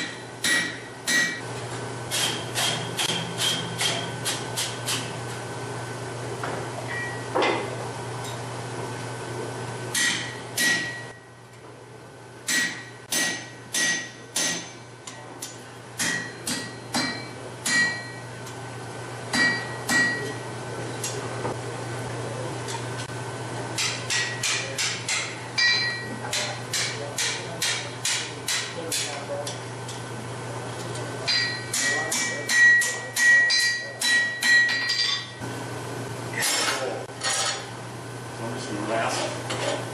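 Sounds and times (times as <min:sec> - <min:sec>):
hammer striking steel on anvil: 0:00.0 - 0:01.4, 0:02.1 - 0:05.1, 0:09.9 - 0:11.2, 0:12.5 - 0:18.3, 0:19.3 - 0:20.4, 0:23.8 - 0:30.0, 0:31.3 - 0:35.4.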